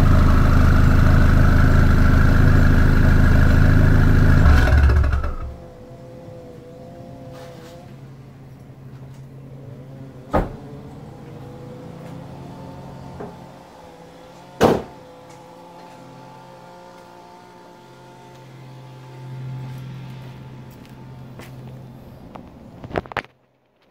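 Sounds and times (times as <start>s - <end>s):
car engine idling: 0.0s - 5.8s.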